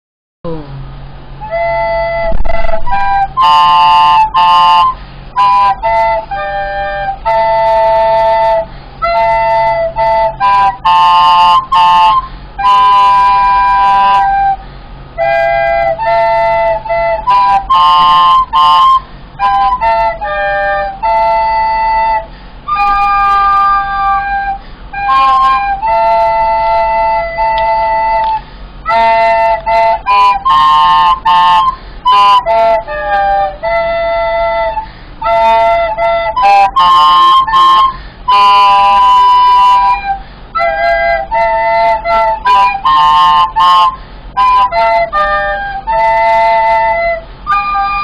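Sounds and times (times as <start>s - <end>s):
recorder duet: 1.4s - 48.0s.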